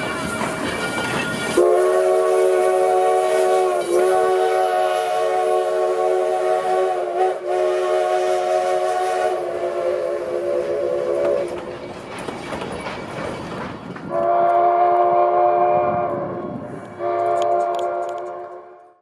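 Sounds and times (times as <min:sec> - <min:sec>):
rumble and clatter of rail cars: 0:00.0 - 0:19.0
steam locomotive whistle: 0:01.5 - 0:11.7, 0:14.1 - 0:19.0.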